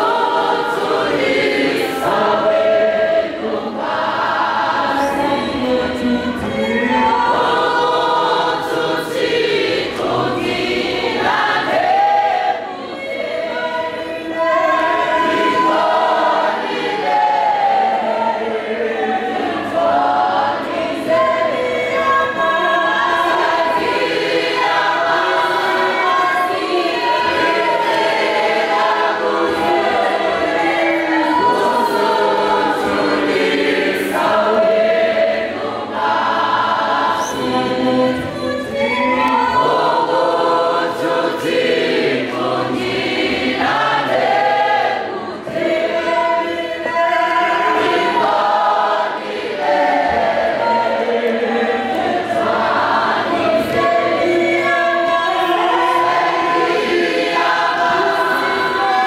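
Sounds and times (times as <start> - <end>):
congregation singing in chorus: 0.0 - 59.0.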